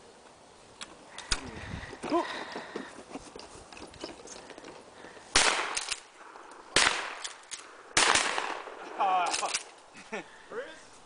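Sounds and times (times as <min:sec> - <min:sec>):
shotgun shots: 0:05.3 - 0:06.1, 0:06.7 - 0:08.8.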